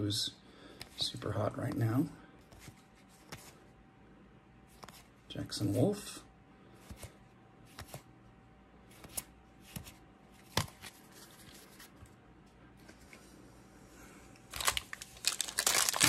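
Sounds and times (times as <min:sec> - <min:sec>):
cards flipped clicking: 0:06.8 - 0:08.0
card rustle: 0:08.9 - 0:12.1, 0:14.5 - 0:16.0.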